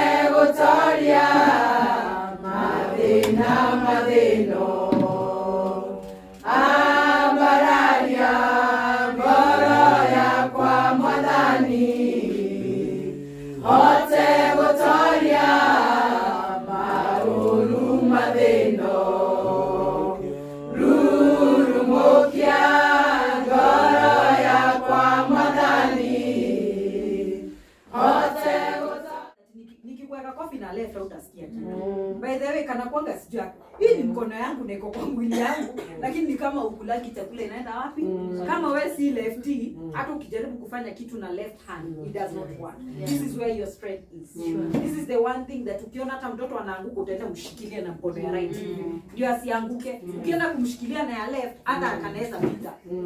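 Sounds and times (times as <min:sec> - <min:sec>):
women singing unaccompanied: 0:00.0 - 0:29.4.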